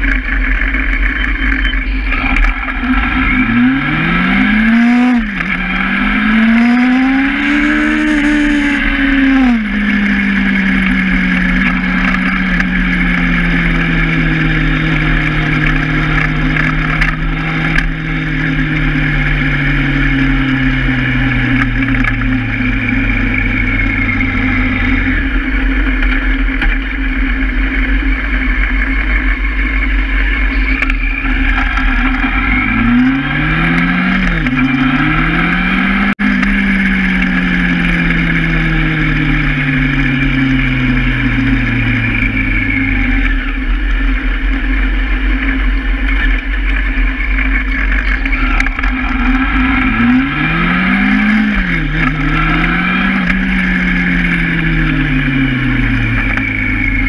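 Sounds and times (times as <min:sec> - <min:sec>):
motorcycle engine revving: 0:00.0 - 0:57.0
road and wind noise: 0:00.0 - 0:57.0.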